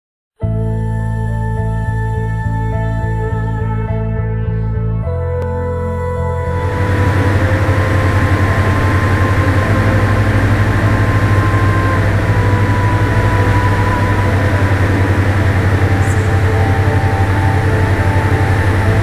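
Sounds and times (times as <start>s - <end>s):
propeller plane engine drone: 6.4s - 19.0s.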